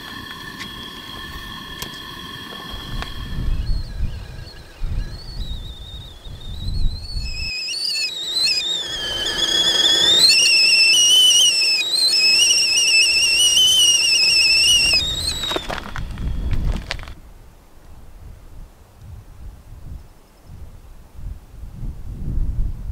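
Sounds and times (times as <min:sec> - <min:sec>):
kettle whistling: 0:00.0 - 0:17.2.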